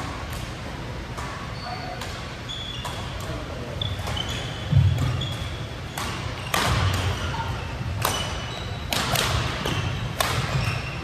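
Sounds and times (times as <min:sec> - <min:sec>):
shoe squeaks: 0:01.4 - 0:11.0
racket striking shuttlecock: 0:04.9 - 0:07.4, 0:08.0 - 0:10.9.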